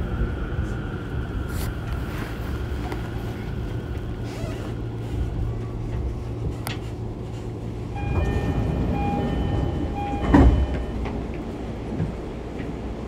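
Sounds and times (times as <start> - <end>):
train low rumble: 0.0 - 13.0
train brakes squealing: 8.0 - 11.2
train thump coming to rest: 10.0 - 11.2.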